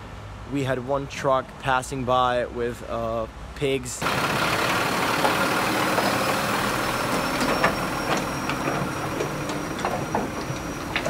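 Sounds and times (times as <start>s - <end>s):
truck diesel engine running: 4.0s - 11.0s.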